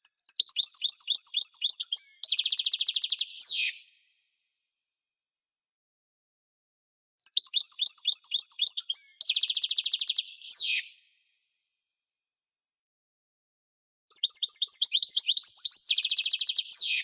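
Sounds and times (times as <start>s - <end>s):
finch singing: 0.0s - 3.8s, 7.2s - 10.9s, 14.1s - 17.0s.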